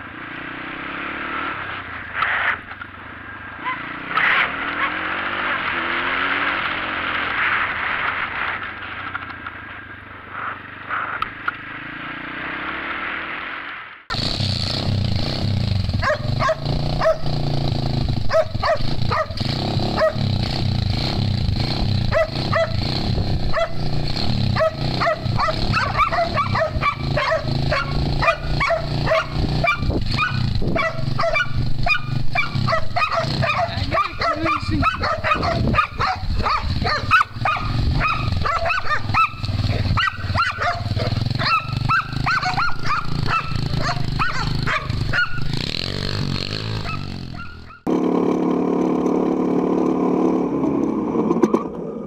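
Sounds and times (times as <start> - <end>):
motorcycle engine: 0.0 - 52.0
low engine hum: 14.2 - 52.0
dog barking rapidly: 16.0 - 17.4, 18.2 - 20.3, 22.0 - 45.6, 46.8 - 47.9
wind noise: 29.1 - 39.1.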